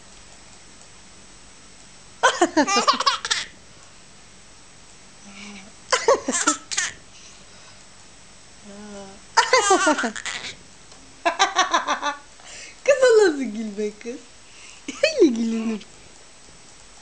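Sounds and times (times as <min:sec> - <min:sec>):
baby laughing: 0:02.2 - 0:03.5, 0:05.9 - 0:07.0, 0:09.4 - 0:10.6.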